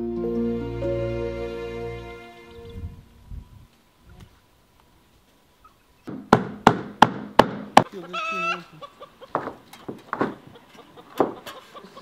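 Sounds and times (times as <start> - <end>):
hammer striking nails: 6.1 - 7.8
hen calling: 7.8 - 9.4.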